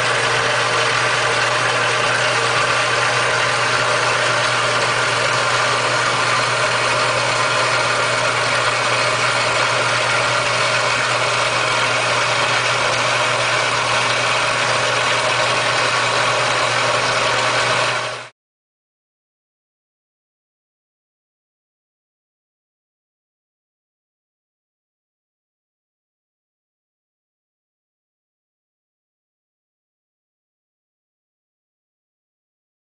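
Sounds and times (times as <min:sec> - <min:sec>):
belt-driven machine humming: 0:00.0 - 0:18.3.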